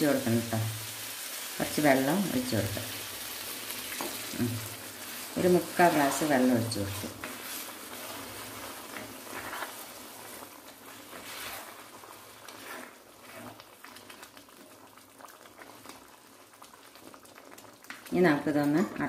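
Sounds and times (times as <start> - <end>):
curry bubbling: 0.0 - 19.0
small crackles: 2.9 - 18.2
spatula scraping pan: 5.1 - 13.6.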